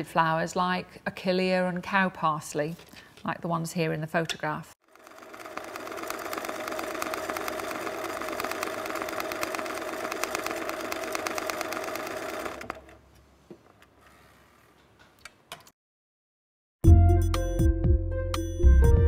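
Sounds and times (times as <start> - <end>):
sewing machine running fast: 4.8 - 12.9.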